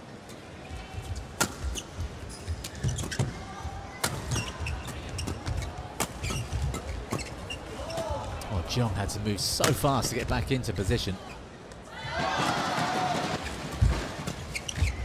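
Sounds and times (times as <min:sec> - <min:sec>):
shoes squeaking on court: 0:00.7 - 0:08.2, 0:13.4 - 0:15.0.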